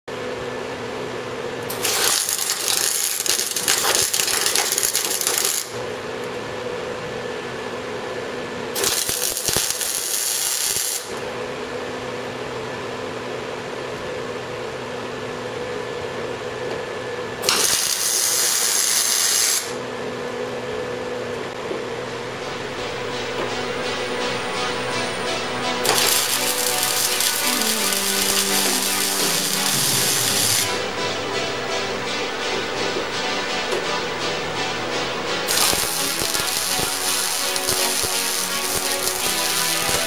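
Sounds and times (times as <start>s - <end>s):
welder hum: 1.6s - 5.8s, 8.8s - 11.2s, 17.4s - 19.8s, 21.9s - 40.0s
welding arc crackle and hiss: 1.7s - 5.8s, 8.8s - 11.2s, 17.4s - 19.8s, 22.4s - 30.9s, 33.8s - 40.0s.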